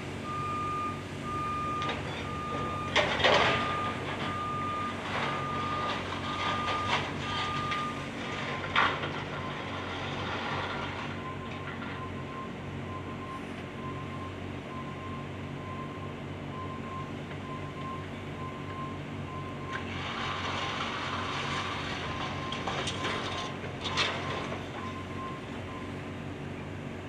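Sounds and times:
diesel excavators running: 0.0s - 27.0s
backup alarm beeping: 0.2s - 8.0s.

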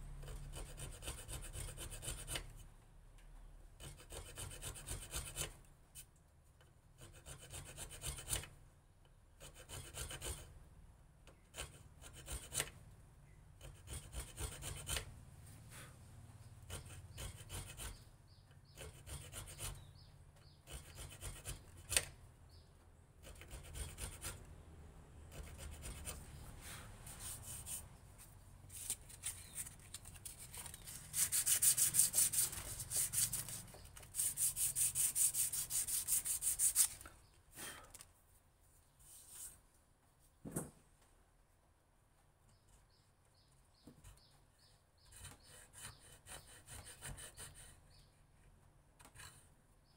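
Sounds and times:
knife scraping wood: 18.6s - 22.2s, 25.3s - 37.8s.

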